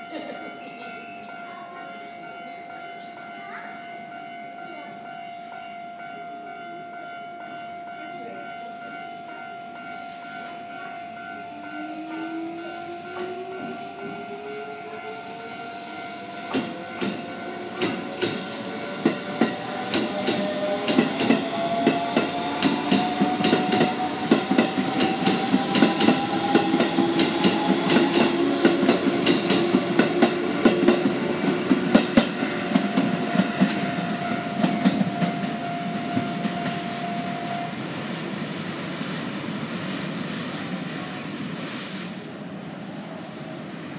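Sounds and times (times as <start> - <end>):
electric train motors whining: 11.5 - 43.9
train wheels clicking over rail joints: 15.7 - 36.9.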